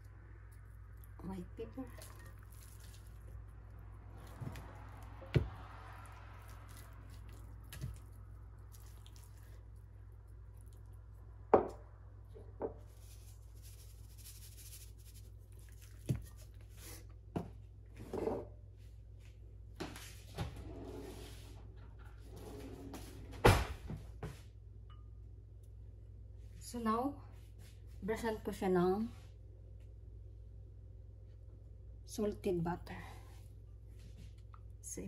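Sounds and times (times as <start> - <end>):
hands handling wet chicken skin: 1.9 - 5.1, 6.4 - 10.8, 12.9 - 17.0.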